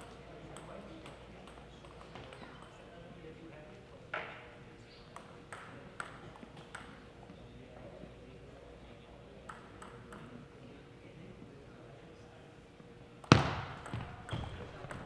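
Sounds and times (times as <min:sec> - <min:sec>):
table tennis ball bouncing: 0:05.2 - 0:07.0, 0:13.2 - 0:15.0
table tennis ball hit: 0:13.2 - 0:15.0.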